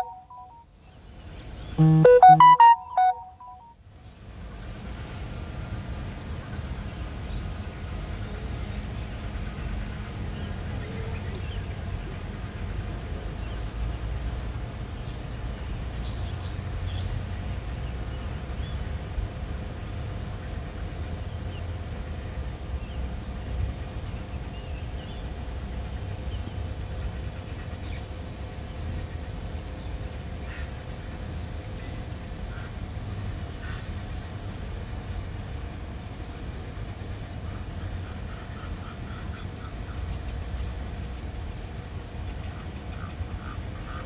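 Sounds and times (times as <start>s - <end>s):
bird chirps: 0.0s - 0.6s.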